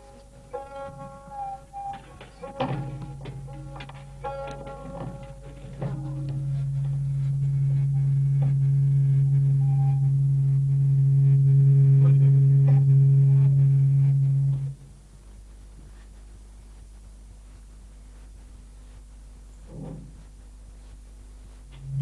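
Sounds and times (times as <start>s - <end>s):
loud low hum: 0.0s - 15.2s.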